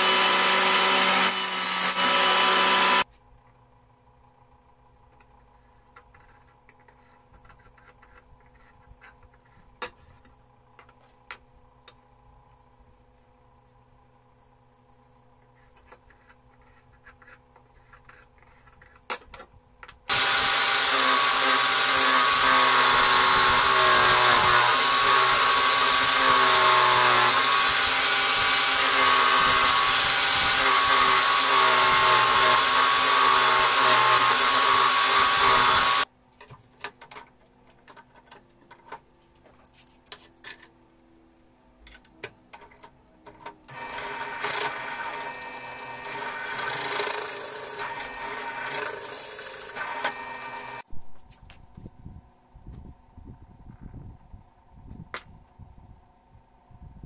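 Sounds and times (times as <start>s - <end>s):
power tool motor running: 0.0s - 3.0s, 20.1s - 36.1s, 43.7s - 50.8s.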